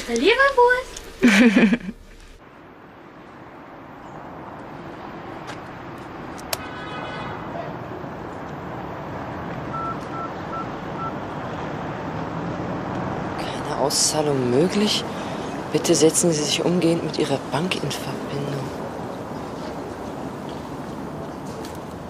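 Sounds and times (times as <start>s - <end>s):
street traffic: 0.0s - 22.0s
cash machine short beeps: 9.7s - 11.2s.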